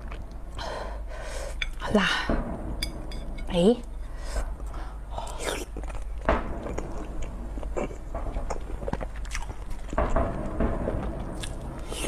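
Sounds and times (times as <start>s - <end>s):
chewing and biting egg: 8.6s - 9.8s.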